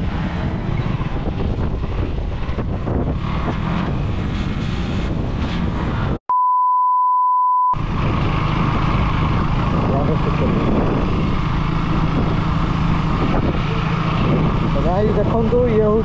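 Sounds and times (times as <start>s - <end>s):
wind noise on microphone: 0.0s - 6.2s, 7.8s - 16.0s
steady single-pitched beep: 6.3s - 7.8s
motorcycle engine running: 7.8s - 16.0s.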